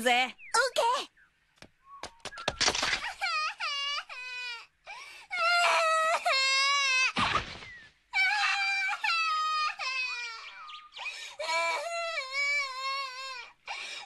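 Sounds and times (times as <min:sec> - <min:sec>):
child wailing and crying: 0:05.3 - 0:07.2, 0:08.2 - 0:10.7, 0:11.4 - 0:13.6.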